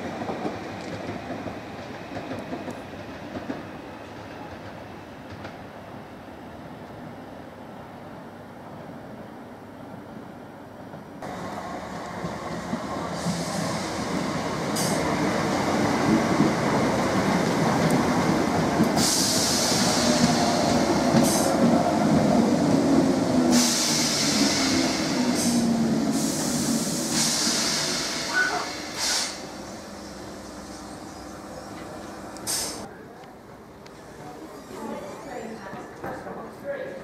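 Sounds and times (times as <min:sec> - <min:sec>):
train wheels rumbling on rails: 0:00.0 - 0:05.9, 0:10.8 - 0:32.9
high hiss: 0:23.5 - 0:32.9.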